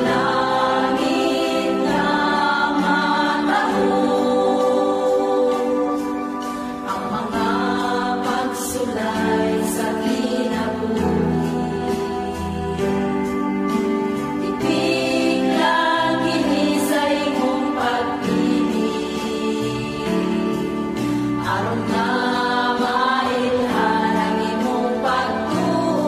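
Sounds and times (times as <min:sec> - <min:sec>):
backing music with bass: 0:00.0 - 0:26.0
women's choir singing: 0:00.0 - 0:26.0.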